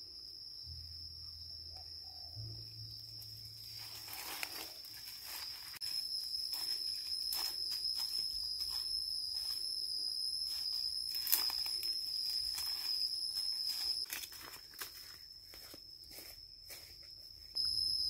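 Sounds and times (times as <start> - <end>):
high-pitched insect drone: 0.0 - 18.0
dry brush crackling and rustling: 3.6 - 17.0.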